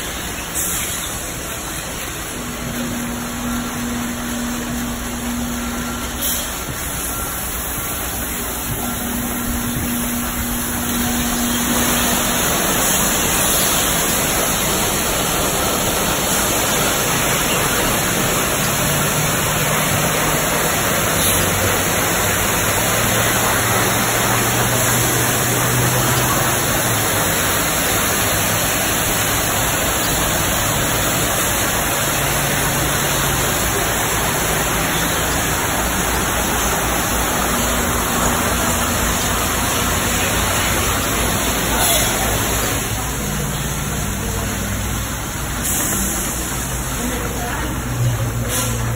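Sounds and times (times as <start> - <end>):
high-pressure water spray hiss: 0.0 - 48.9
low hum: 2.2 - 30.6.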